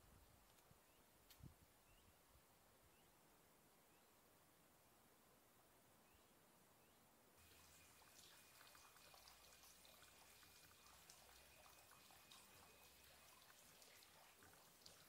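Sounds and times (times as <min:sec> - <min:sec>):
faint steady high tone: 0:07.4 - 0:14.9.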